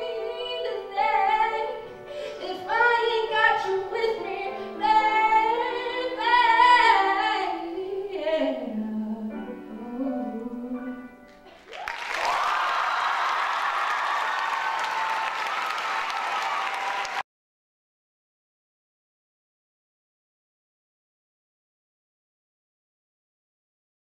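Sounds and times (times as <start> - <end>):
woman singing a ballad: 0.0 - 11.2
grand piano accompaniment: 0.0 - 12.4
audience applause: 11.5 - 17.2.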